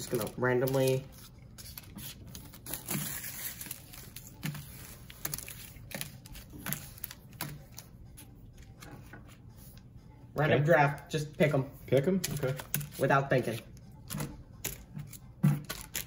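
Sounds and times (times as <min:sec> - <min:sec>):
plastic wrappers crinkling: 0:00.0 - 0:07.9.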